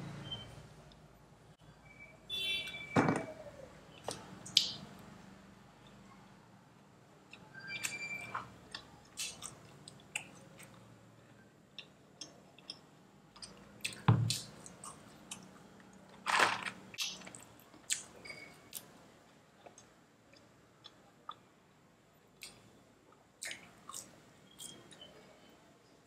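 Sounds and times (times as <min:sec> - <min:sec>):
chewing and crunching food: 0:08.7 - 0:10.9.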